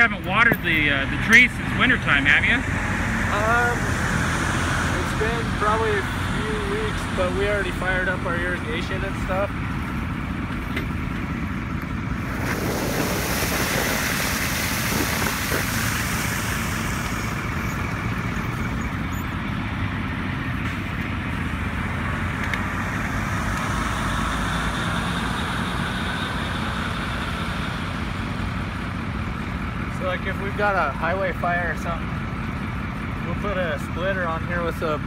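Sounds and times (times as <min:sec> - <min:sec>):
water rushing onto grass: 0:12.2 - 0:17.8.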